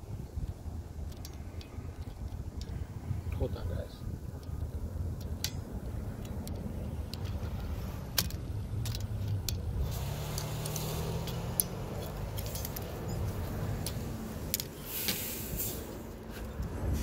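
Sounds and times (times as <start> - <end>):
clicks and rattles of parts: 0.3 - 2.8, 4.3 - 15.3.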